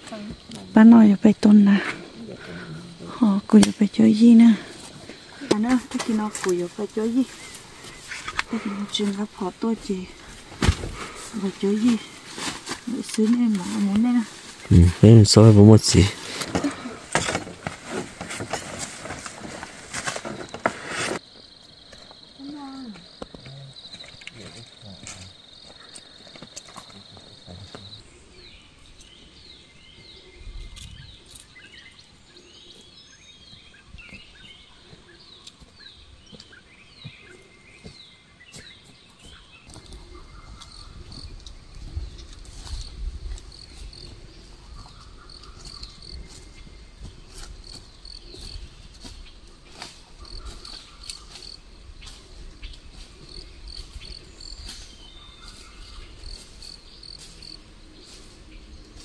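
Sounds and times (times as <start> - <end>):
insects calling: 0.0 - 59.0
snaps and rustles: 16.2 - 21.2.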